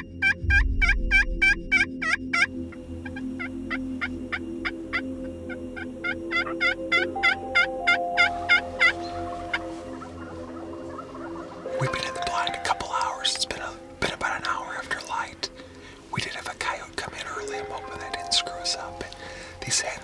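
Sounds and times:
turkey call yelps: 5.8s - 12.6s.

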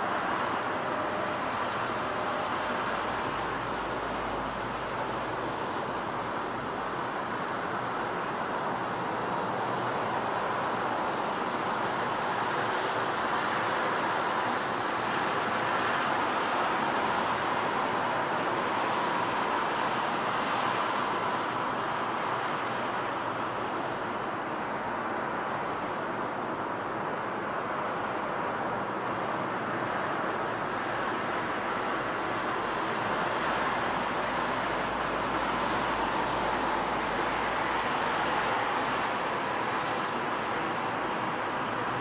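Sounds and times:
distant road traffic: 0.0s - 42.0s
bird chirps and trills: 1.6s - 2.0s.

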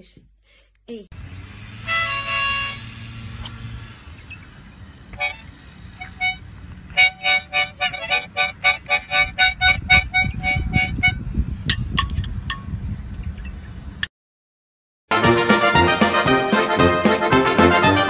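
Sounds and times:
harmonica notes and chords: 1.8s - 3.1s, 5.2s - 11.2s, 15.1s - 18.0s.

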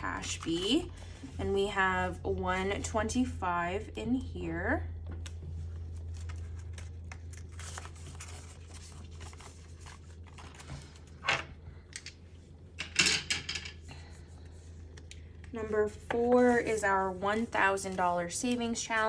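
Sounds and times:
steady low hum: 0.0s - 19.0s
banknotes and plastic crinkling: 5.5s - 12.2s, 16.4s - 19.0s.

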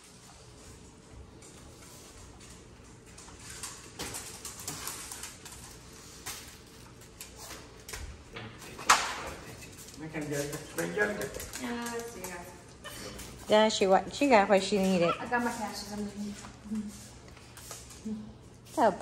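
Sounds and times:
dog claws clicking on wooden floor: 1.4s - 8.1s, 8.8s - 13.5s.

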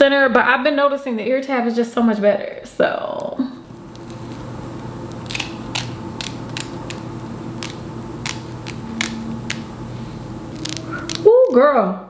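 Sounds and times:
faint steady hum: 0.0s - 12.0s
scissors snipping: 5.1s - 7.0s, 7.6s - 9.7s.

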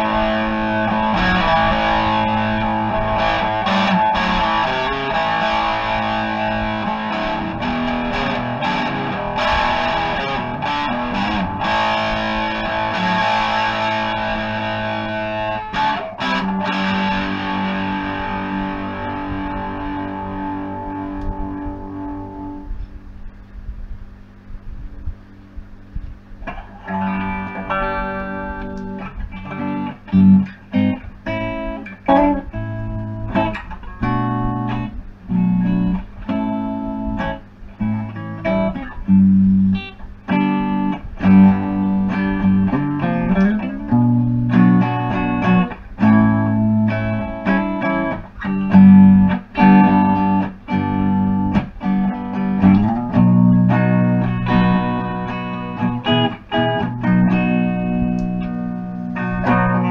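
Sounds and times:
electric guitar chords and notes: 0.0s - 59.9s.

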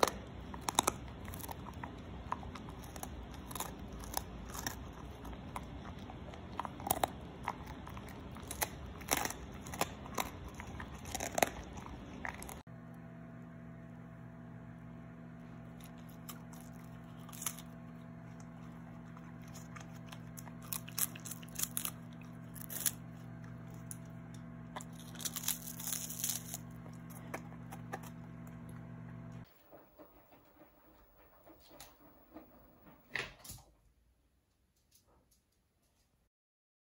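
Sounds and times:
dog crunching food: 0.0s - 12.7s, 15.4s - 29.6s
steady low hum: 0.0s - 33.1s.

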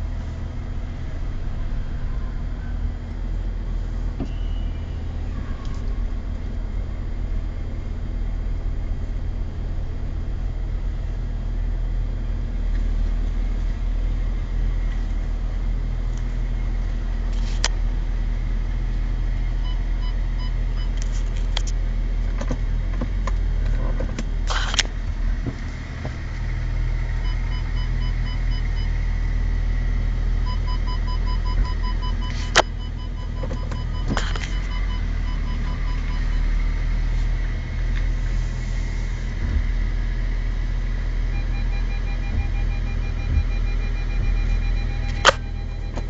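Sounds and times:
car rumble inside cabin: 0.0s - 46.0s
parking sensor beeping: 4.0s - 5.9s, 19.4s - 21.1s, 27.2s - 29.0s, 30.4s - 37.0s, 41.2s - 46.0s.

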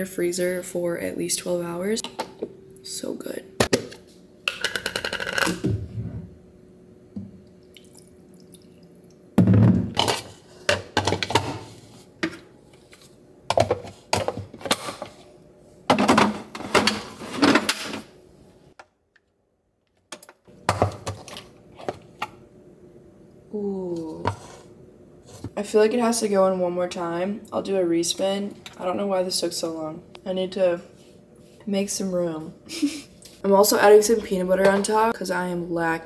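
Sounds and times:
plastic containers knocked on countertop: 9.4s - 10.1s.

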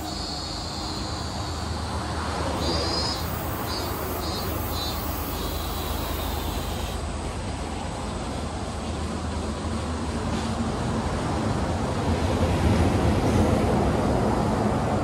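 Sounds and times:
high pulsed chirping: 0.0s - 7.0s
traffic noise: 0.0s - 15.0s.

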